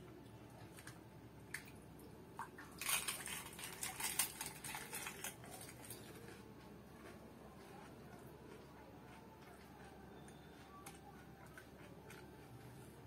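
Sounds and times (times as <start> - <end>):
crisp shell crunching when chewed: 2.8 - 12.8.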